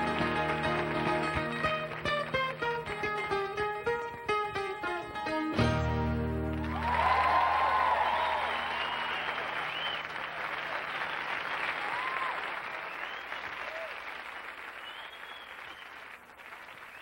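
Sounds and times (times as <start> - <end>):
crowd applauding: 0.0 - 3.9, 6.1 - 17.0
short cheers: 6.5 - 14.2.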